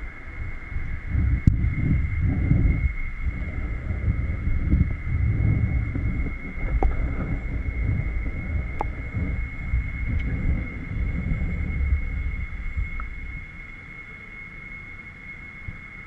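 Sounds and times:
muffled underwater bubbling: 0.0 - 13.8.

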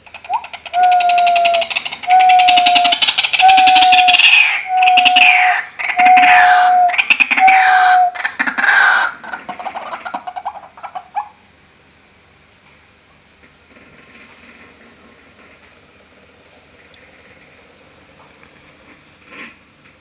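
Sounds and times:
waterhen calling: 0.0 - 11.4.

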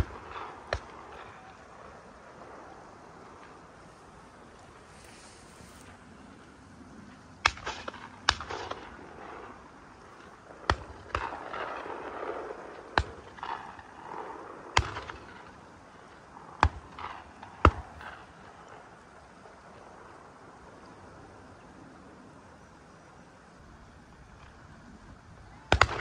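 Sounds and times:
shotgun shots with echo: 0.0 - 1.9, 7.4 - 15.6, 25.7 - 26.0.

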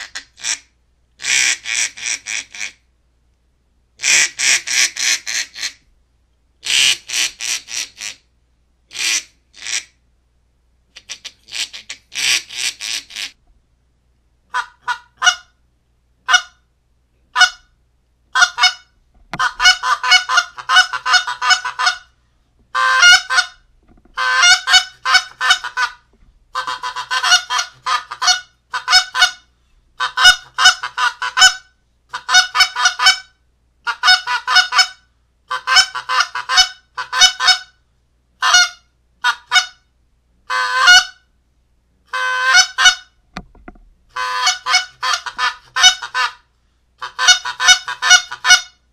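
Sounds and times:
goose call honks and clucks: 0.0 - 2.8, 4.0 - 5.8, 6.6 - 8.2, 8.9 - 10.0, 11.0 - 13.4, 14.5 - 15.5, 16.2 - 16.6, 17.3 - 17.7, 18.4 - 22.1, 22.7 - 37.8, 38.4 - 39.8, 40.5 - 41.2, 42.1 - 43.2, 44.1 - 48.8.

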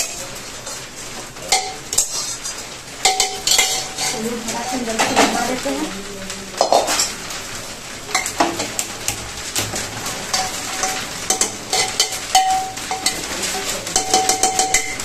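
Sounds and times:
spoon scraping metal pot: 1.5 - 4.2
metallic ringing: 3.0 - 4.9, 10.3 - 13.3, 13.9 - 15.0.

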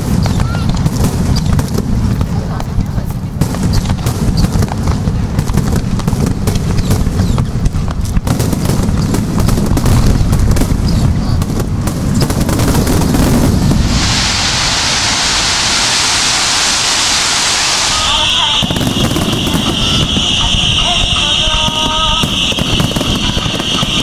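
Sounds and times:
fireworks booming and crackling: 0.0 - 24.0
steady hiss: 11.4 - 24.0.

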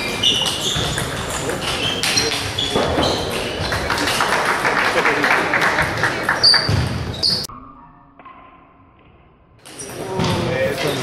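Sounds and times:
table tennis balls ticking: 0.0 - 4.5
busy sports hall noise: 0.0 - 7.5, 9.5 - 11.0.

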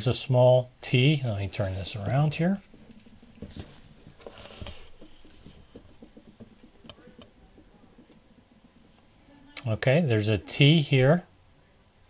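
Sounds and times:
plastic clicks and knocks: 2.7 - 9.0.

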